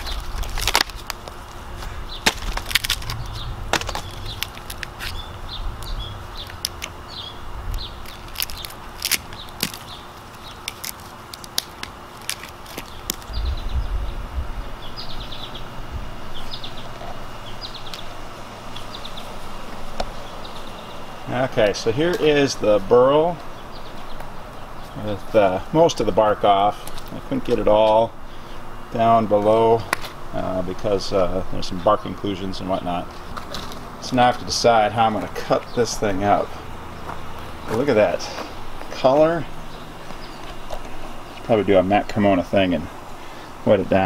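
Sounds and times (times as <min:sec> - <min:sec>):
bark cracking and snapping: 0:00.0 - 0:01.6, 0:02.2 - 0:05.2, 0:05.8 - 0:07.0, 0:07.7 - 0:13.4.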